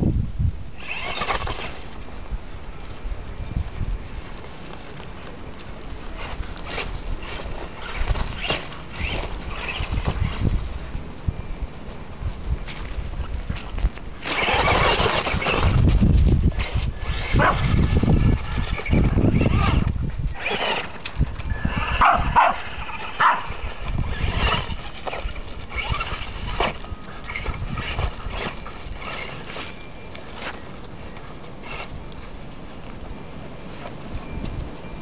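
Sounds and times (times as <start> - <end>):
toy truck motor whirring: 0.8 - 1.8, 6.2 - 10.7, 13.6 - 29.8, 31.6 - 32.0
small dog noises: 17.0 - 19.8, 21.5 - 26.2.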